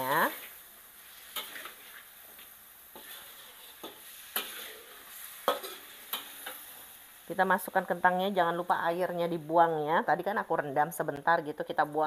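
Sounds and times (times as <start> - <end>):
metal spatula scraping wok: 0.0 - 7.0
faint frying sizzle: 0.0 - 12.0.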